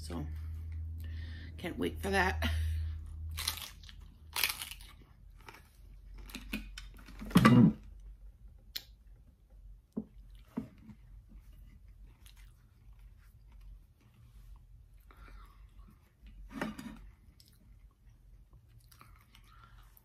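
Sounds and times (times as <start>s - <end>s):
chewing with crunches: 3.2s - 7.3s, 10.1s - 20.0s.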